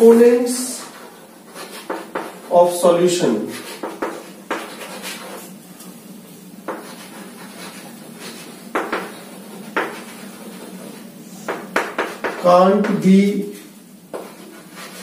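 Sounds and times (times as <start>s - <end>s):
chalk scratching on blackboard: 0.6s - 2.6s, 3.4s - 5.6s, 6.7s - 15.0s
chalk tapping on board: 0.8s - 2.5s, 3.6s - 5.5s, 6.7s - 13.0s, 14.1s - 15.0s.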